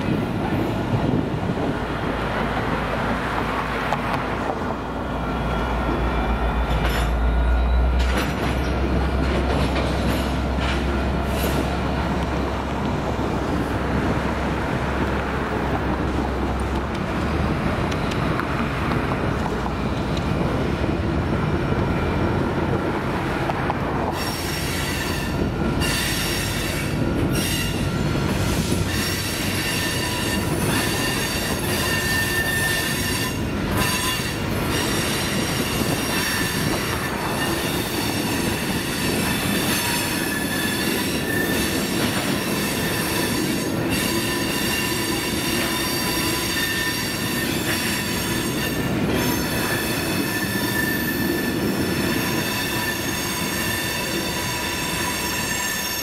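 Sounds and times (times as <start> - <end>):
train cars rumbling past: 0.0 - 56.0
wheel squeal: 24.1 - 56.0.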